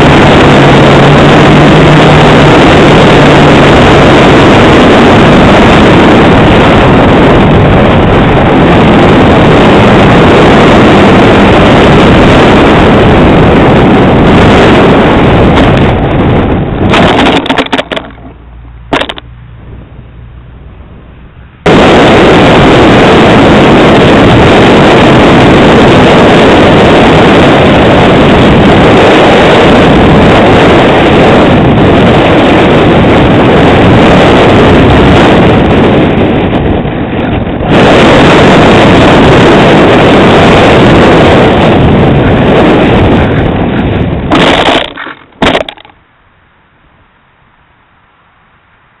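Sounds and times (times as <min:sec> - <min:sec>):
electric motor and propeller: 0:00.0 - 0:20.1, 0:26.7 - 0:46.0
rush of airflow on microphone: 0:00.0 - 0:49.0.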